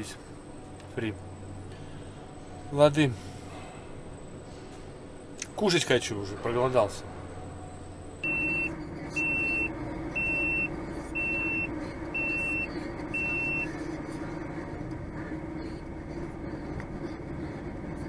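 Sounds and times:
truck diesel engine running: 0.0s - 18.0s
high electronic beeps: 8.2s - 13.7s.

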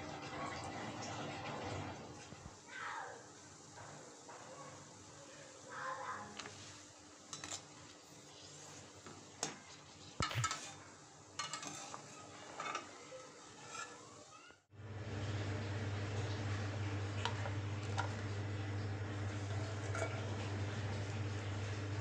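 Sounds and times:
water boiling: 0.0s - 2.7s, 14.7s - 22.0s
metal spoon scraping and knocking pot: 10.2s - 10.8s, 11.4s - 13.0s, 13.6s - 14.0s.

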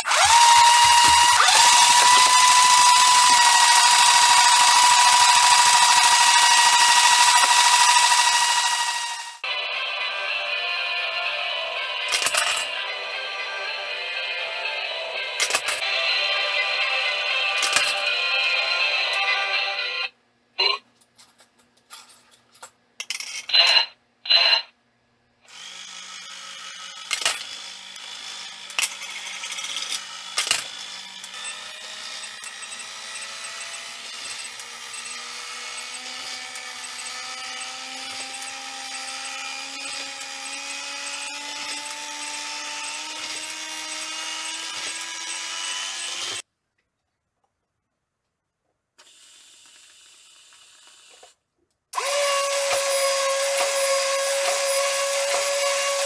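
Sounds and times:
small electric motor whine: 0.0s - 10.1s, 25.5s - 46.4s.

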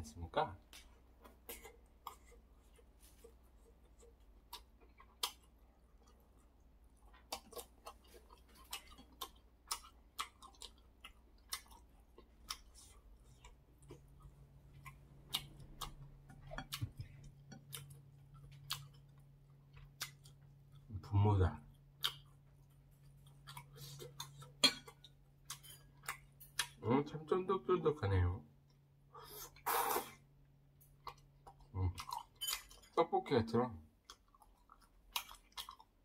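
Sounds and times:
faint low hum: 0.0s - 36.0s
chewing and lip smacks: 0.7s - 20.9s, 21.9s - 26.8s, 34.0s - 36.0s.

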